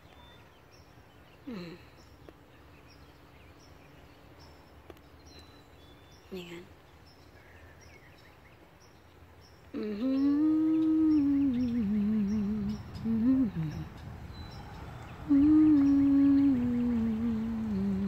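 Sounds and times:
person humming a slow tune: 1.4 - 2.0, 9.7 - 14.5, 15.2 - 18.0.

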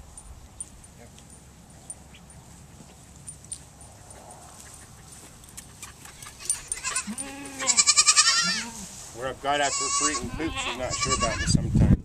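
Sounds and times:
young goats bleating: 6.3 - 11.6.

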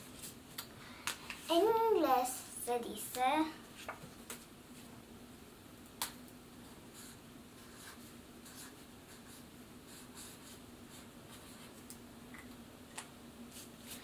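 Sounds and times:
marker scratching on paper: 7.0 - 11.7.

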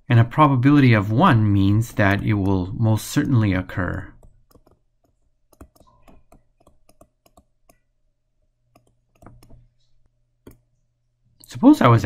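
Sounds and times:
faint low hum: 0.0 - 12.0
stylus tapping on tablet screen: 3.8 - 7.9, 8.7 - 10.7.

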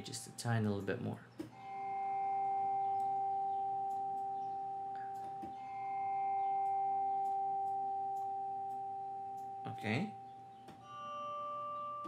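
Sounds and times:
sustained bell-like chord: 1.5 - 12.0.

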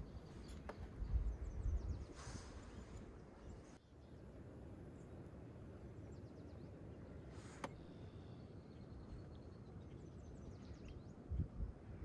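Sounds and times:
low rumble of background noise: 0.0 - 12.0
faint bird chirps: 5.9 - 12.0.

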